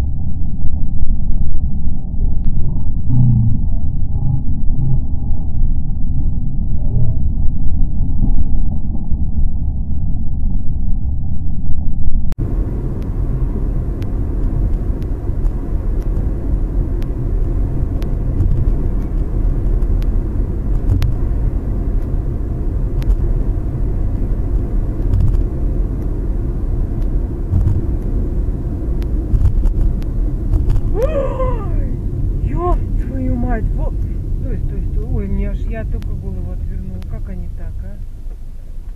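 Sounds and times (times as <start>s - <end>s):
car engine and tyre rumble: 0.0s - 38.9s.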